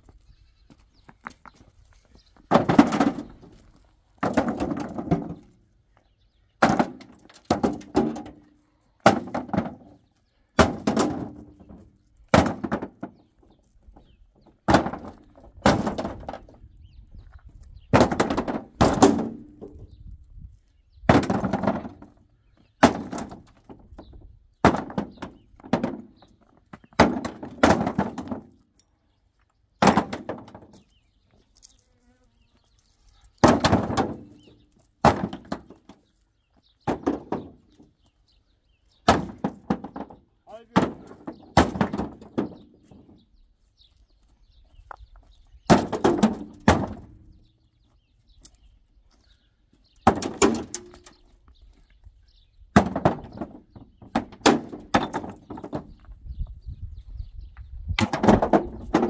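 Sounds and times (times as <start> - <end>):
stones thudding into trailer bed: 2.4 - 5.6, 6.6 - 10.0, 10.6 - 13.4, 14.0 - 16.7, 17.9 - 19.9, 21.0 - 28.6, 29.8 - 30.9, 33.4 - 36.1, 36.8 - 37.9, 39.0 - 43.2, 45.6 - 47.4, 50.0 - 51.2, 52.7 - 56.1, 57.9 - 59.0.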